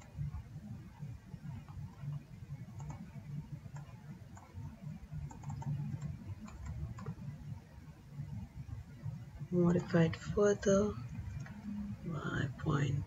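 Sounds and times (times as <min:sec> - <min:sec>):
low background rumble: 0:00.0 - 0:13.0
computer mouse clicks: 0:01.5 - 0:07.3, 0:11.1 - 0:11.8.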